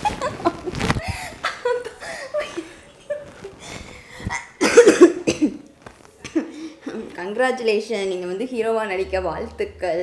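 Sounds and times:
man and woman laughing: 0:00.0 - 0:03.5.

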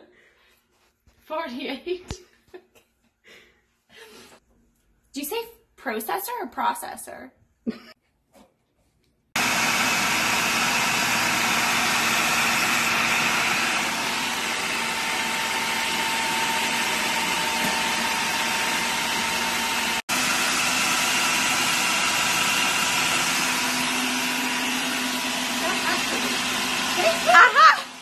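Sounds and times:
food processor running: 0:09.4 - 0:28.0.

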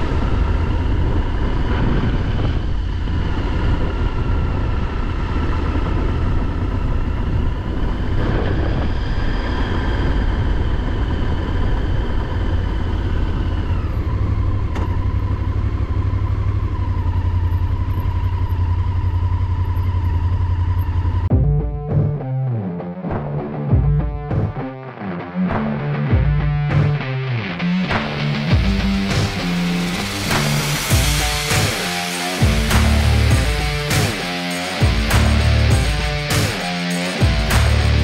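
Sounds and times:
motorcycle engine running: 0:00.0 - 0:08.8, 0:09.7 - 0:22.2, 0:25.6 - 0:38.0
wind noise: 0:00.0 - 0:15.4.

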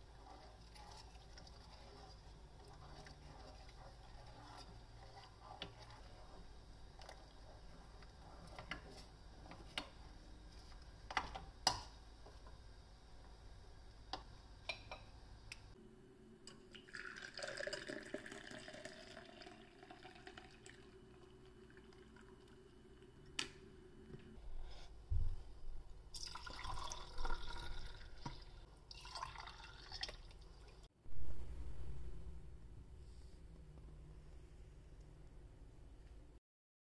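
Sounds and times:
milk pouring into clay cups: 0:00.0 - 0:10.0, 0:16.7 - 0:23.2, 0:26.1 - 0:30.9
wooden spoon stirring in saucepan: 0:00.0 - 0:15.1
milk pouring into glass: 0:16.7 - 0:22.3, 0:26.2 - 0:30.4.

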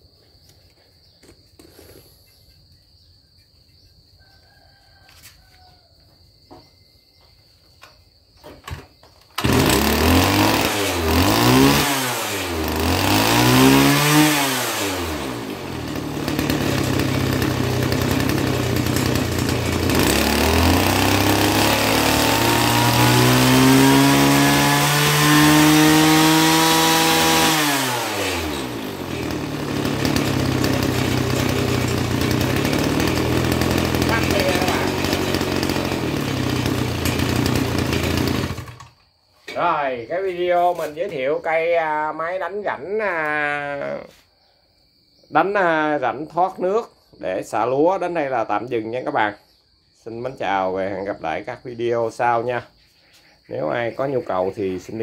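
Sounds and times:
small petrol engine revving: 0:09.4 - 0:39.0.

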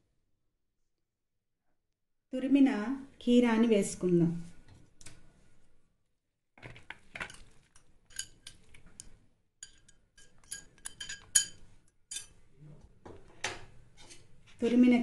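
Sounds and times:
glass bowl clinking on plastic bowl: 0:09.6 - 0:12.2.

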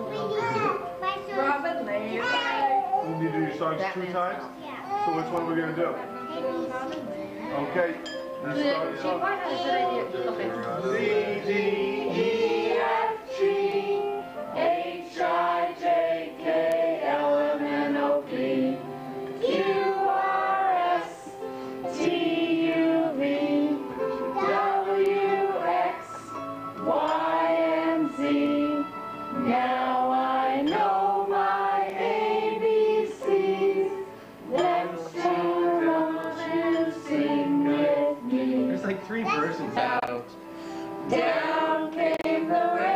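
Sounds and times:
child singing: 0:00.0 - 0:01.6, 0:11.4 - 0:13.5, 0:19.4 - 0:21.2, 0:23.4 - 0:26.3, 0:34.6 - 0:38.4, 0:39.2 - 0:40.0
group of people singing: 0:07.4 - 0:40.2, 0:41.0 - 0:42.9.

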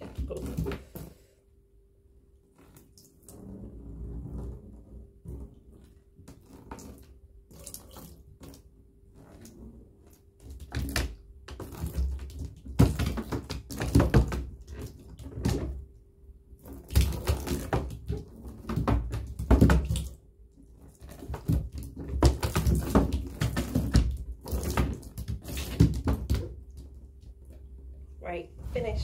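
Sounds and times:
water pouring into bathtub: 0:02.6 - 0:04.5, 0:05.5 - 0:10.9, 0:16.6 - 0:20.2
cat splashing water: 0:05.3 - 0:15.8.

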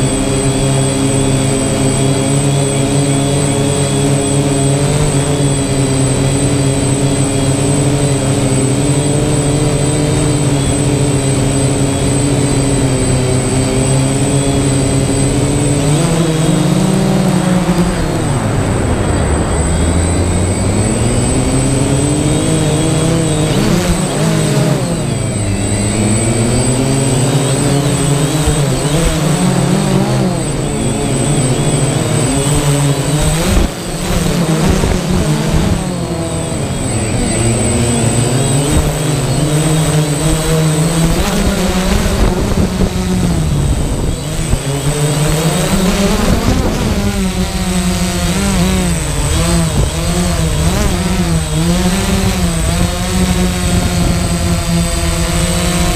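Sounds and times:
drone propellers buzzing: 0:00.0 - 0:55.9
steady high whine: 0:00.0 - 0:55.9.

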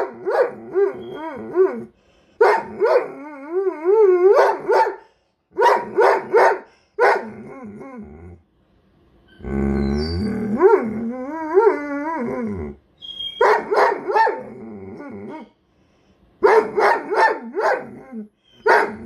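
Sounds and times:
dog barking sharply: 0:04.4 - 0:05.0, 0:05.6 - 0:07.2, 0:13.4 - 0:14.4, 0:16.4 - 0:17.8, 0:18.7 - 0:19.0.

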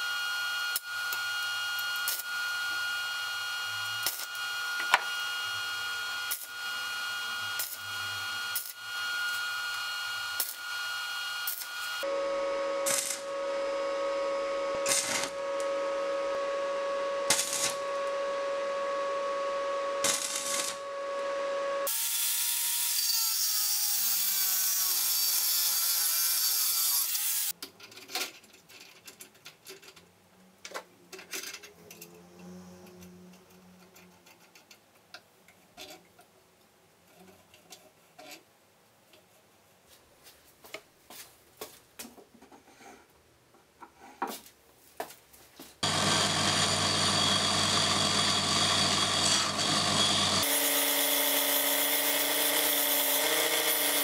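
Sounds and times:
power tool whining: 0:00.0 - 0:23.1, 0:45.8 - 0:54.0
welding arc crackle: 0:00.7 - 0:02.7, 0:03.7 - 0:05.1, 0:06.2 - 0:12.0, 0:12.8 - 0:13.3, 0:14.8 - 0:15.7, 0:17.3 - 0:18.2, 0:20.0 - 0:20.8.

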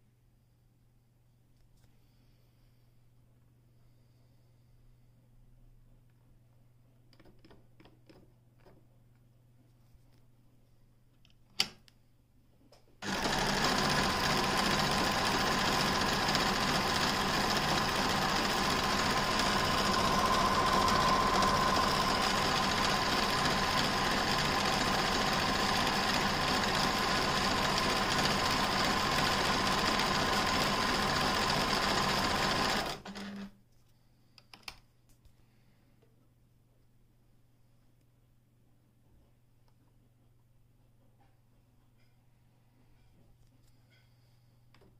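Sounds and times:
sewing machine stitching: 0:13.0 - 0:33.5.

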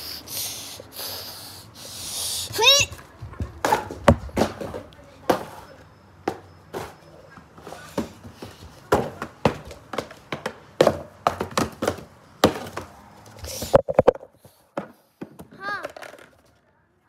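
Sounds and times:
sharp knocks and thuds: 0:03.2 - 0:05.6.

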